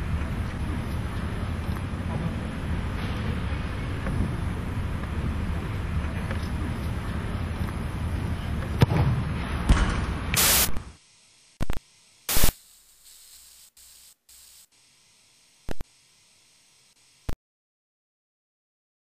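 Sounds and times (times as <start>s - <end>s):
soccer ball kicked thuds: 8.6s - 10.1s
static-like noise bursts: 10.1s - 17.4s
burst of hiss: 10.4s - 11.4s, 12.2s - 17.3s.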